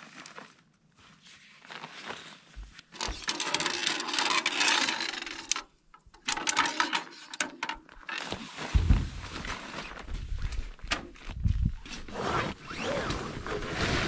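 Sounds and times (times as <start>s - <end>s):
nylon fabric rustling and scraping: 0.0s - 5.1s, 7.9s - 14.0s.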